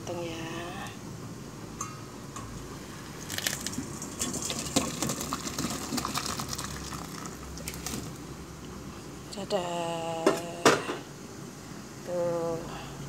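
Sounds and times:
soup splashing into a bowl: 0:03.2 - 0:08.2.

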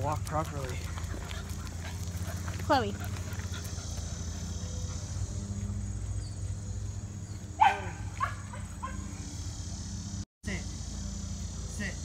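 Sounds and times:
dog yelping: 0:07.3 - 0:09.3
dog barking: 0:07.6 - 0:09.2.

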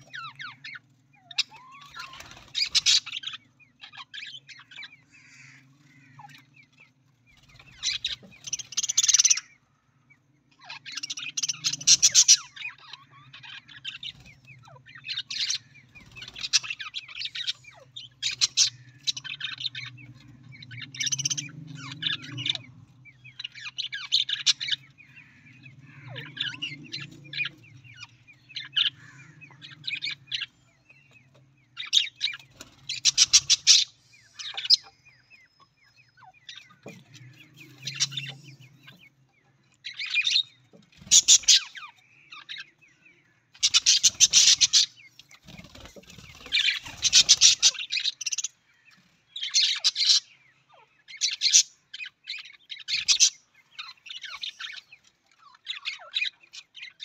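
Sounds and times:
budgerigars chattering: 0:00.0 - 0:09.6, 0:10.5 - 0:57.0.

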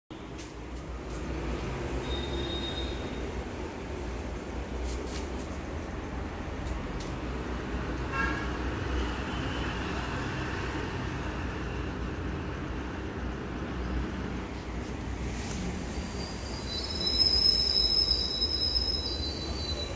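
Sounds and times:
road traffic rumble: 0:00.1 - 0:19.9
vehicle horn toot: 0:02.0 - 0:03.2.

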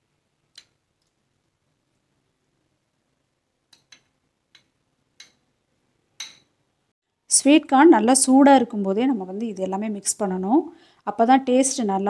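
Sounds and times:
spoon clicking on ceramic bowl: 0:03.8 - 0:05.4, 0:06.2 - 0:06.5.

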